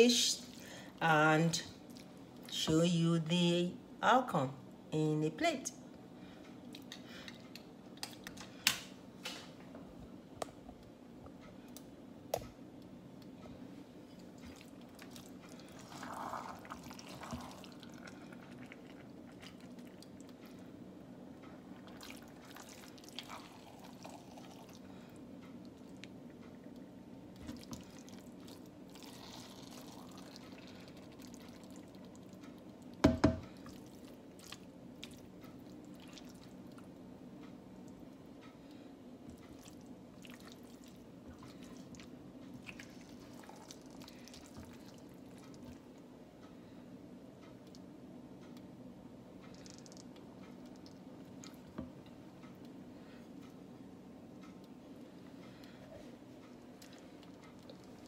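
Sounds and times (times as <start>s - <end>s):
steady low hum: 0.0s - 58.0s
wet squelching of thick soup: 14.3s - 20.6s, 21.8s - 24.9s, 27.4s - 32.4s, 33.6s - 36.8s, 39.4s - 45.8s
spatula knocking on pot: 33.0s - 33.4s.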